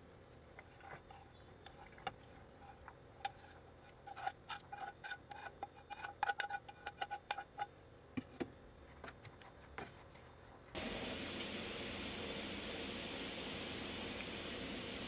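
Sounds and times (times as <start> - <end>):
utensil scraping on plate: 0.6 - 7.7
onions sizzling in hot oil: 10.8 - 15.0.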